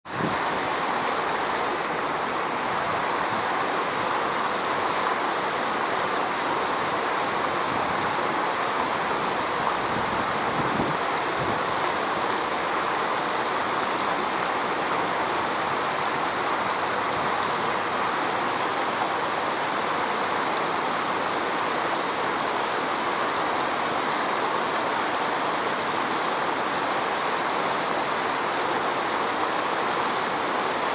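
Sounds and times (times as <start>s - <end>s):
river water rushing: 0.1s - 30.9s.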